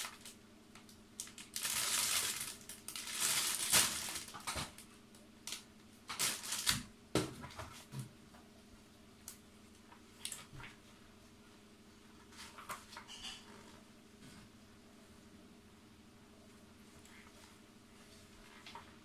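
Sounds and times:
plastic bags crinkling: 0.0s - 4.9s, 5.5s - 6.9s.

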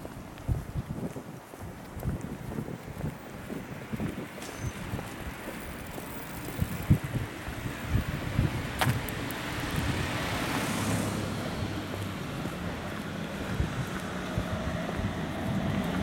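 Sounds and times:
small car passing: 4.4s - 16.0s.

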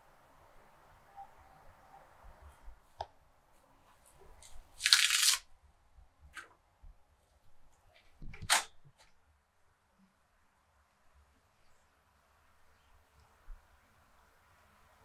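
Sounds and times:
herbs torn by hand: 4.4s - 5.4s.

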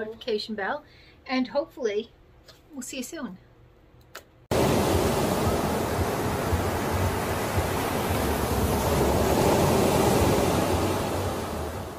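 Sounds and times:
ocean surf washing: 4.5s - 11.9s.

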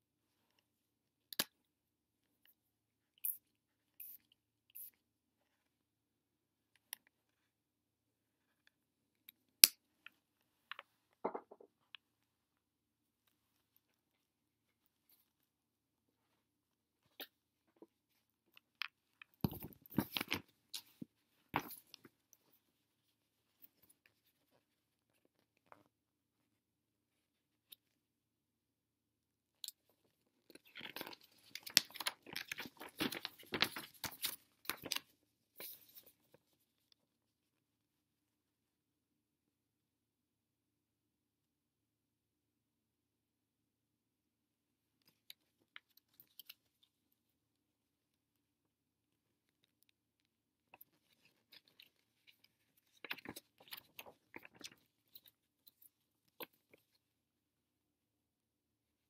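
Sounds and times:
paper pages rustling: 30.8s - 35.0s.

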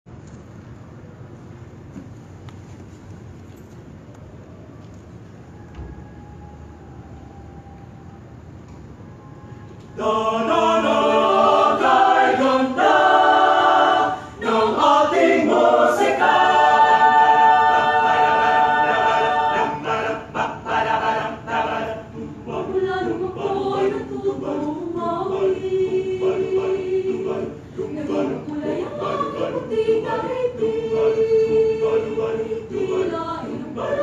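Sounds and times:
choir singing a cappella: 9.0s - 34.0s.

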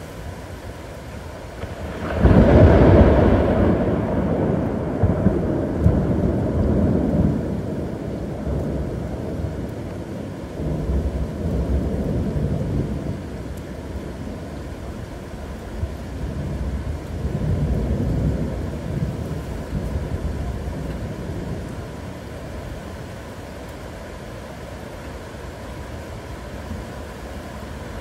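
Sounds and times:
rain hissing: 0.0s - 28.0s
thunder crack and rumble: 1.5s - 14.5s, 15.6s - 22.6s.

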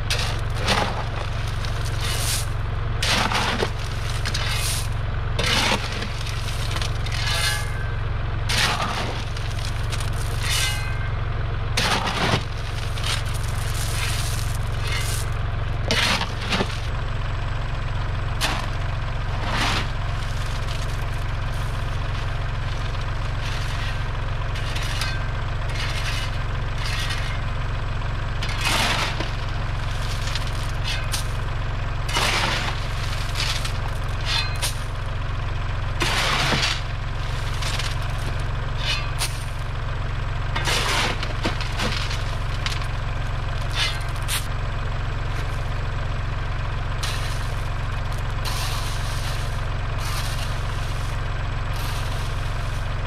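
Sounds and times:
tractor engine idling: 0.0s - 53.0s
shovel scraping crushed stone: 0.1s - 7.8s, 8.5s - 11.0s, 11.8s - 16.9s, 19.4s - 27.4s, 28.4s - 29.3s, 30.0s - 31.4s, 32.1s - 34.9s, 36.0s - 39.5s, 40.6s - 42.9s, 43.6s - 44.5s, 47.0s - 53.0s.

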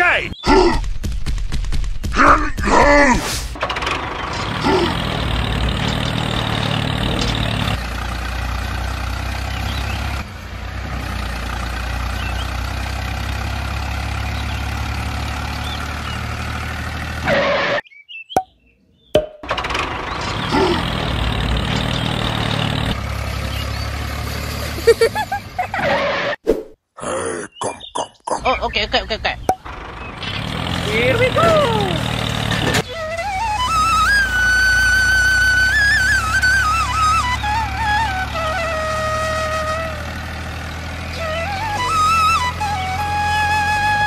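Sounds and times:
model tractor engine hum: 3.6s - 17.6s, 19.4s - 26.1s, 29.6s - 44.0s.

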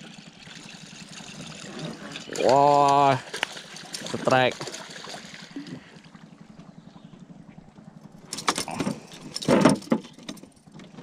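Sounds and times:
fish splashing against boat: 1.0s - 11.0s.

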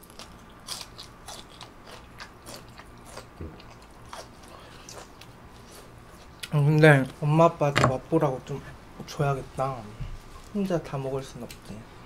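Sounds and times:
crunchy chewing: 0.0s - 6.6s.

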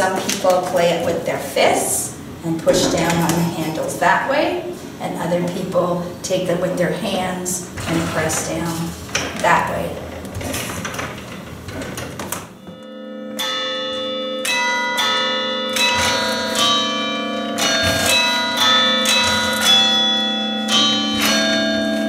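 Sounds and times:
church bells ringing a tune: 12.8s - 22.0s.

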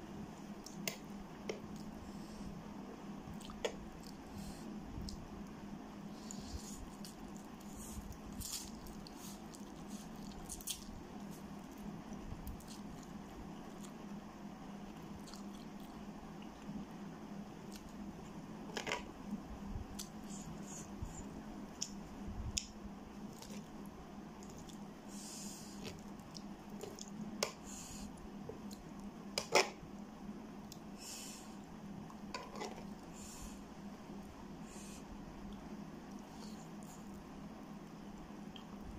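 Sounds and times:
wet eating sounds: 6.8s - 14.1s, 15.0s - 16.7s.

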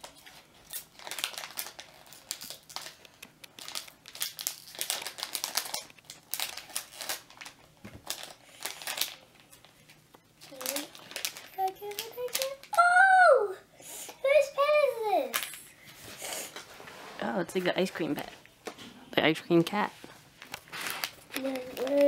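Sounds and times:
plastic packaging crackling: 0.0s - 12.9s, 20.4s - 22.0s
scissors cutting plastic: 20.8s - 22.0s.

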